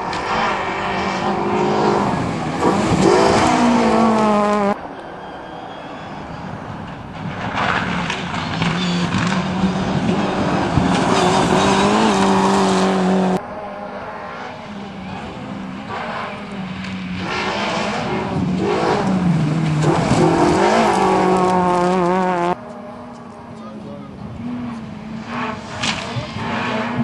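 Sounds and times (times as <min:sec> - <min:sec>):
rally car approaching: 0:00.0 - 0:27.0.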